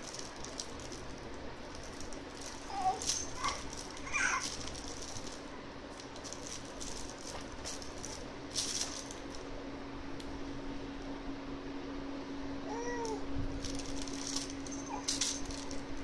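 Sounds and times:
soft toy rustling: 0.0s - 9.4s
steady low hum: 0.0s - 16.0s.

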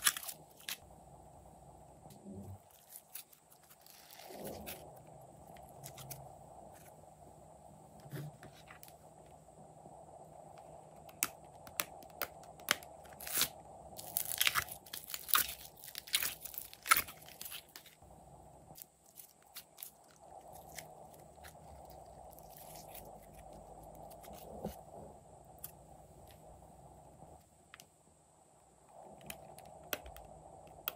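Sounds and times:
slime and plastic crackling: 11.0s - 18.0s.

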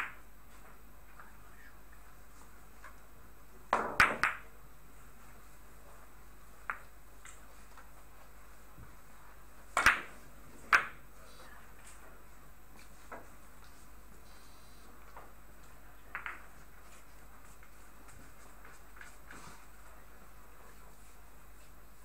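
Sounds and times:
billiard balls clicking: 0.0s - 0.3s, 3.7s - 4.5s, 6.6s - 8.0s, 9.7s - 11.0s, 15.0s - 17.1s
cue striking cue ball: 3.7s - 4.5s.

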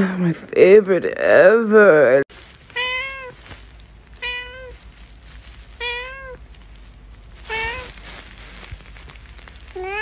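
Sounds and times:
cat meowing: 2.7s - 3.4s, 4.2s - 4.8s, 5.8s - 6.4s, 7.5s - 8.0s, 9.7s - 10.0s.

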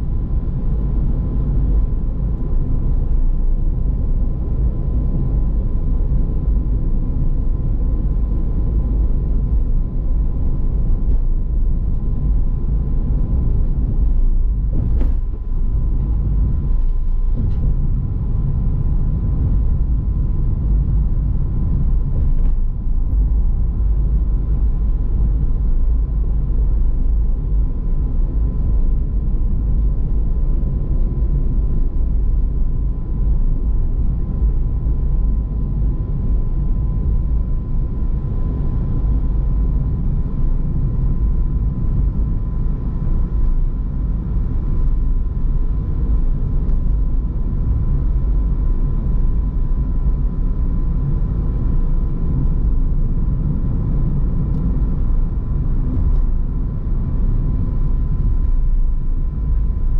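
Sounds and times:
car road and engine rumble: 0.0s - 59.9s.

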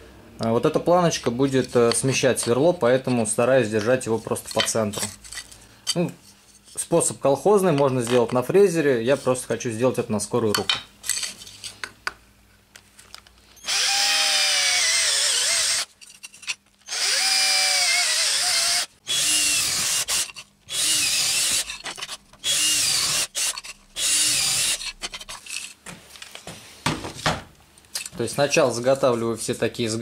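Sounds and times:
electric drill boring through plastic: 13.6s - 15.9s, 16.8s - 21.8s, 22.4s - 24.9s.

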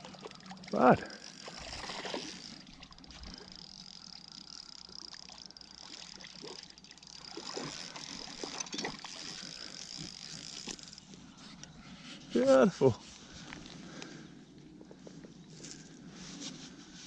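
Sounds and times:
water splashes: 0.0s - 10.9s
small waves lapping: 0.0s - 14.3s
fishing reel clicks: 0.2s - 11.7s.

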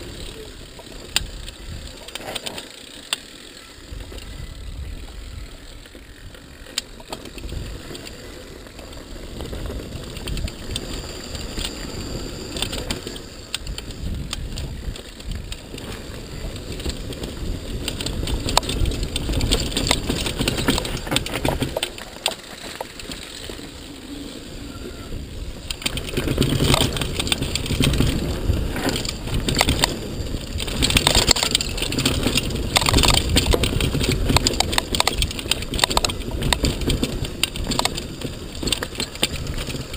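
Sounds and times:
bike rattling over bumps: 0.0s - 39.9s
tyres crunching over dirt: 0.0s - 39.9s
wind on microphone: 9.2s - 21.8s, 23.5s - 39.9s.

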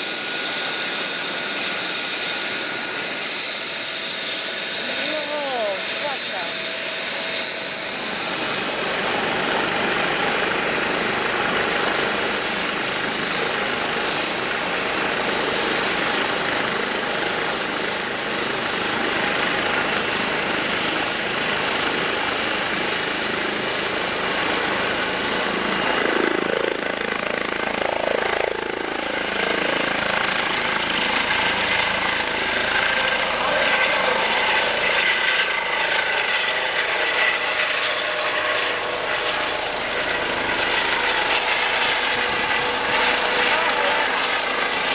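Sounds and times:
helicopter rotor noise: 0.0s - 44.9s
helicopter turbine whine: 0.0s - 44.9s.

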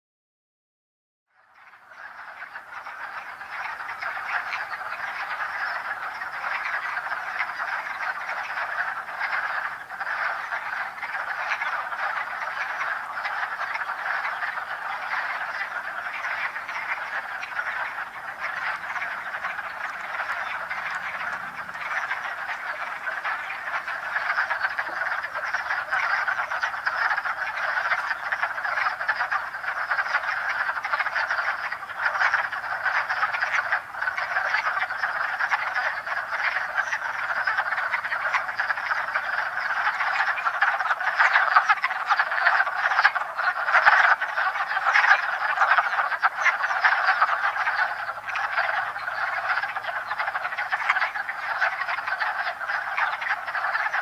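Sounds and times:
chorus of frogs clucking: 1.4s - 54.0s.

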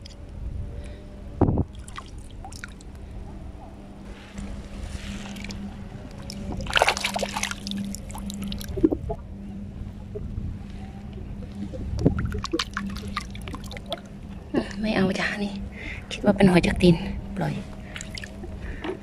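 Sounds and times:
steady low hum: 0.0s - 19.0s
seawater sloshing and splashing: 1.7s - 9.2s, 11.6s - 14.1s, 17.7s - 19.0s.

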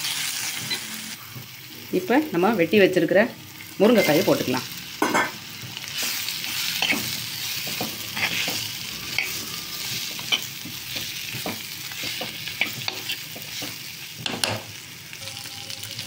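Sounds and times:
food sizzling in oil: 0.0s - 16.0s
steel spoon scraping a pot: 6.6s - 13.7s.

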